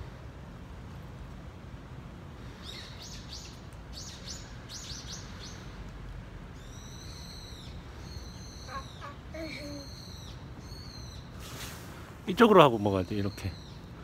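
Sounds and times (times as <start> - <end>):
bird chirping: 2.6 - 5.8, 6.6 - 11.4, 13.0 - 14.0.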